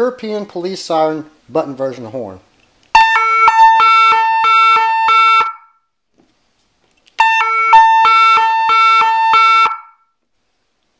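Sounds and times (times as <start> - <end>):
two-tone siren horn: 3.0 - 5.8, 7.2 - 10.1.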